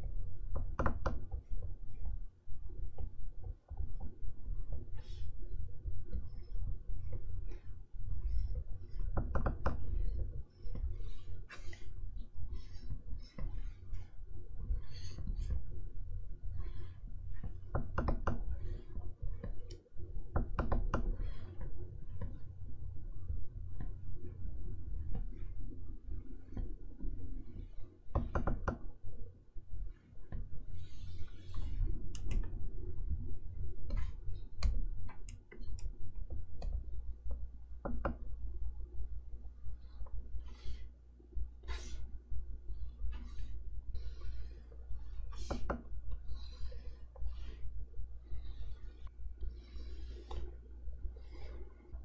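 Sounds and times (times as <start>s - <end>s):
low steady hum: 0.0s - 52.0s
stylus stroking on screen: 9.8s - 17.7s, 29.8s - 33.0s, 38.4s - 52.0s
stylus scratchy strokes: 41.6s - 51.9s.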